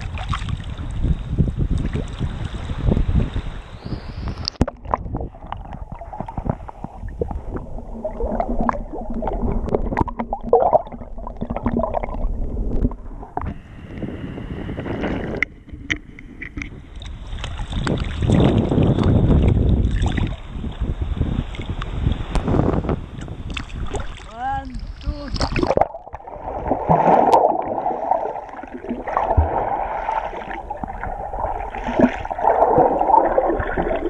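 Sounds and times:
water sloshing and splashing: 0.0s - 1.0s, 4.4s - 13.6s, 15.0s - 20.5s, 23.2s - 34.0s
wind on microphone: 0.0s - 34.0s
muffled underwater gurgling: 3.8s - 17.0s, 22.4s - 34.0s.

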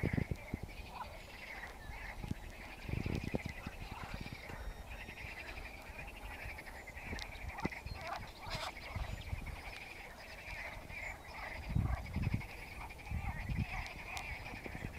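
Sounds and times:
frogs trilling croaks: 0.0s - 14.9s.

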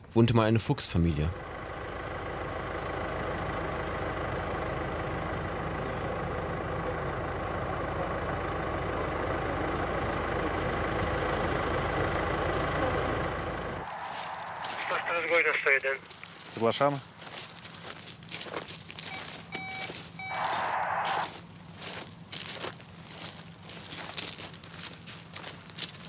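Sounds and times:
car engine idling: 1.0s - 26.0s
thin high whine: 13.8s - 15.6s, 20.3s - 21.4s.

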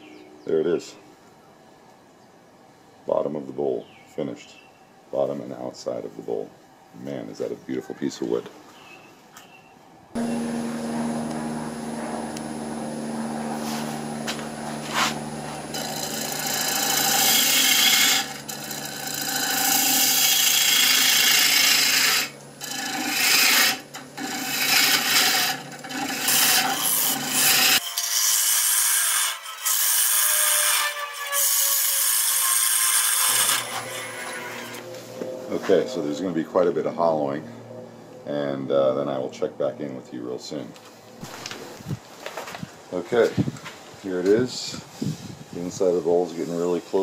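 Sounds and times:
lathe motor humming: 10.2s - 27.8s
tool scraping spinning wood: 10.2s - 36.3s.

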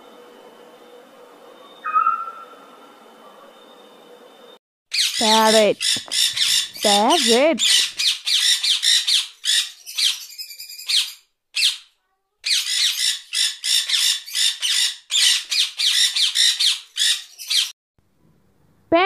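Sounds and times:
parrot squawking: 1.8s - 2.6s, 4.9s - 17.7s.

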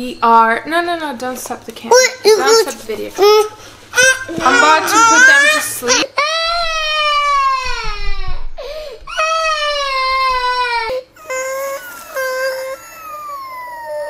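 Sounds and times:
toddler crying: 2.3s - 8.5s, 9.1s - 14.0s.

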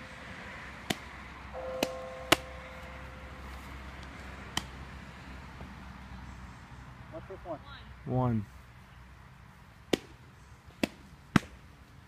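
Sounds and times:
faint steady tone: 0.0s - 4.2s.

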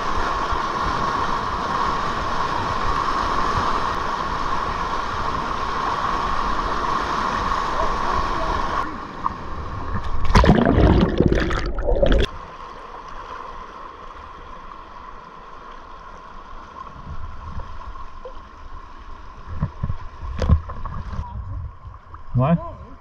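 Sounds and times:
river water rushing: 1.2s - 16.7s
water gurgling: 9.8s - 12.4s.

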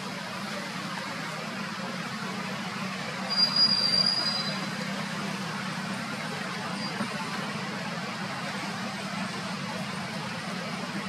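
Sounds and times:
high thin whistle: 3.3s - 4.7s.

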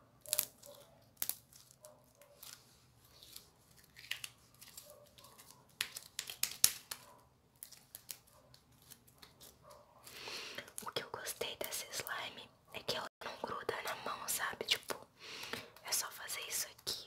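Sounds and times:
sticky clicks and pops: 5.4s - 7.0s.

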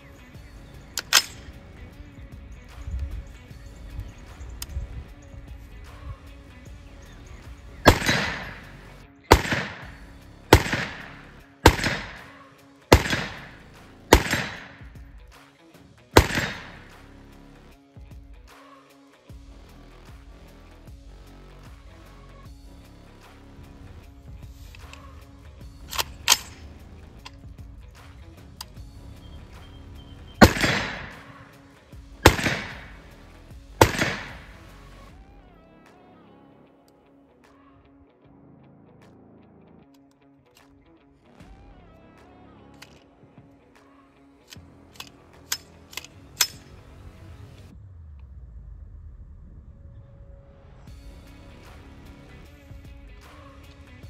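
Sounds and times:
background music: 0.0s - 48.2s, 49.5s - 54.0s
rifle shots with echo: 0.4s - 5.0s, 5.8s - 15.1s, 16.2s - 17.2s, 24.6s - 27.4s, 29.5s - 35.3s, 44.9s - 46.9s.

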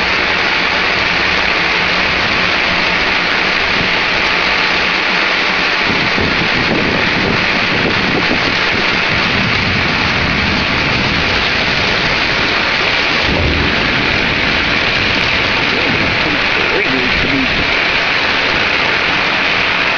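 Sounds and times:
heavy rain pouring: 0.0s - 19.9s
low thunder rumble: 5.9s - 19.6s.

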